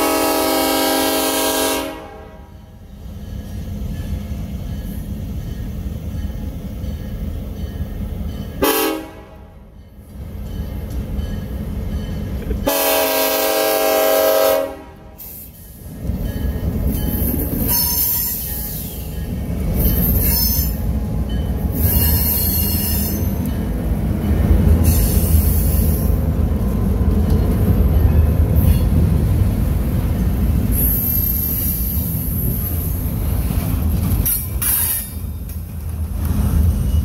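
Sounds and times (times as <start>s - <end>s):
train horn blast: 0.0s - 2.7s, 8.6s - 9.6s, 12.6s - 15.2s
heavy rumble of passing train: 0.0s - 37.0s
wheel squeals: 21.8s - 23.5s.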